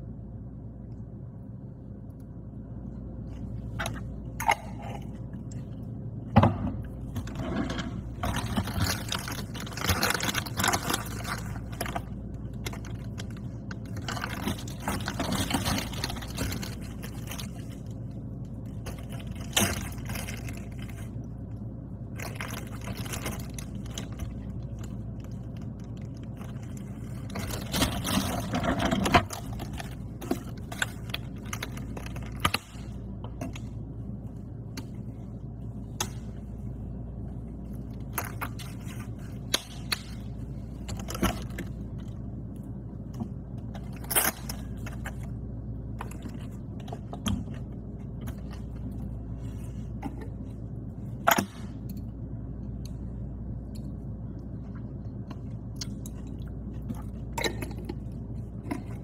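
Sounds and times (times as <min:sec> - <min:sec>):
steady low hum: 0:00.0 - 0:59.0
plastic bag rustling: 0:08.0 - 0:18.1
chewing and crunching: 0:08.0 - 0:34.2, 0:53.6 - 0:59.0.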